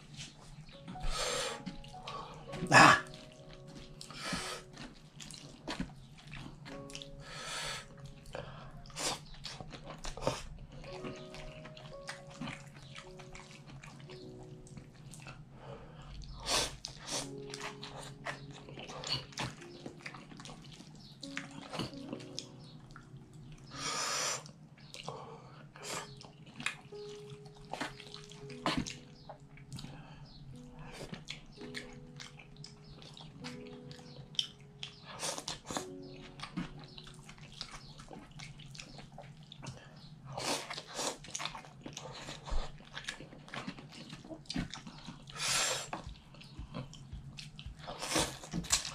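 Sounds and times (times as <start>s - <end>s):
soft background music: 0.0s - 48.9s
noodles slurped: 40.3s - 48.9s.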